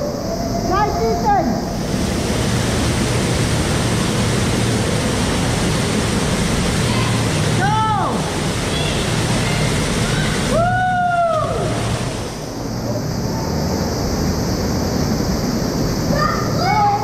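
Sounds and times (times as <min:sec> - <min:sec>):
waterfall pouring into a pool: 0:01.9 - 0:12.4.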